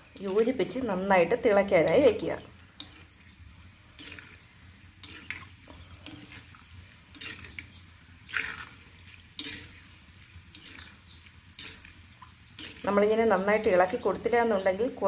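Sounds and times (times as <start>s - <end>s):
oil sizzling: 0.0s - 15.0s
steel ladle scraping a pan: 1.6s - 13.0s.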